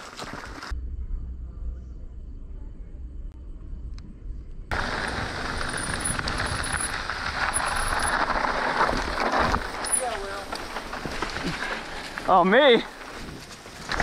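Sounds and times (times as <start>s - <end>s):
bike rattling: 0.0s - 0.7s, 4.7s - 14.0s
faint low rumble: 0.2s - 14.0s
tyre and wind noise: 4.7s - 14.0s.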